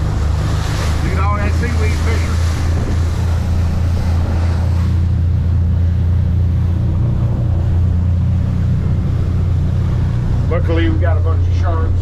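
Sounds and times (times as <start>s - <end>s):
churning wake hiss: 0.0s - 12.0s
motorboat engine droning: 0.0s - 12.0s
wind: 0.0s - 12.0s.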